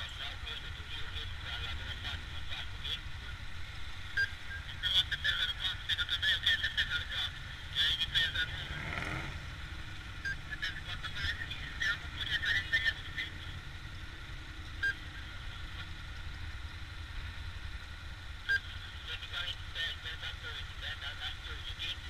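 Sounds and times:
motorcycle engine and road rumble: 0:00.0 - 0:22.0.

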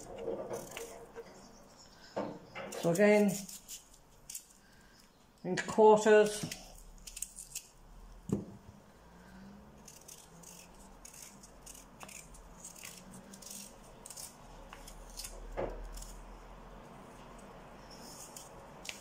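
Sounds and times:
peeler scraping potato skin: 0:00.0 - 0:01.6, 0:02.5 - 0:05.1, 0:06.2 - 0:07.8, 0:09.7 - 0:16.3, 0:17.9 - 0:19.0.

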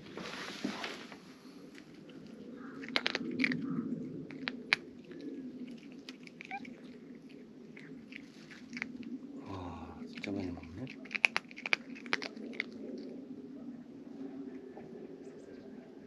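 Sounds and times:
cat crunching kibble: 0:01.6 - 0:09.4, 0:10.0 - 0:13.3.

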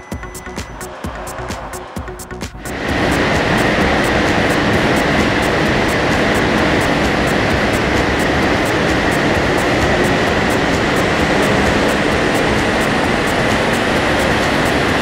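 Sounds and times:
car on dynamometer rushing: 0:00.0 - 0:15.0.

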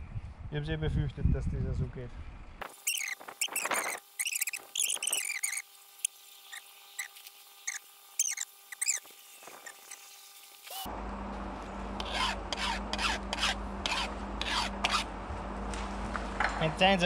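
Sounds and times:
file rasping on chainsaw chain: 0:06.5 - 0:10.1, 0:12.0 - 0:15.1.

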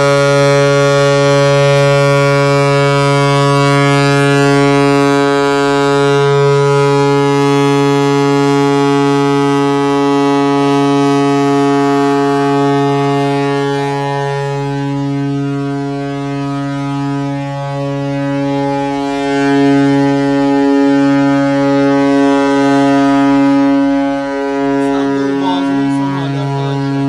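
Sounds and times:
ship horn long low blast: 0:00.0 - 0:27.0.

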